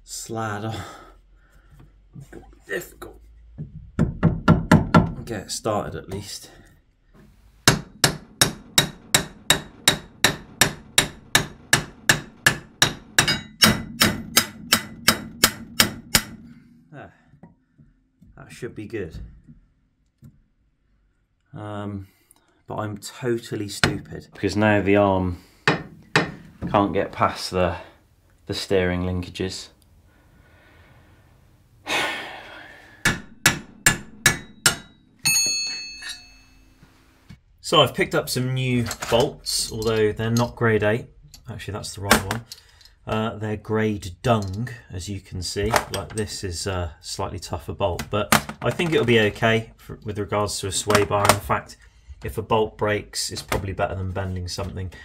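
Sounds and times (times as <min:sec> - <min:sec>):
hammer striking steel: 0:07.6 - 0:16.6, 0:25.6 - 0:26.4, 0:33.0 - 0:36.8
metal ringing: 0:07.7 - 0:16.6, 0:33.0 - 0:36.8.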